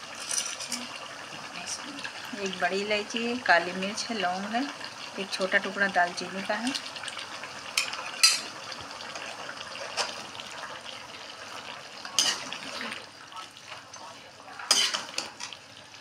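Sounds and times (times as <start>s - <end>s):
meat sizzling and bubbling: 0.0s - 16.0s
metal spatula clinking on pan: 7.8s - 8.5s, 14.7s - 15.5s.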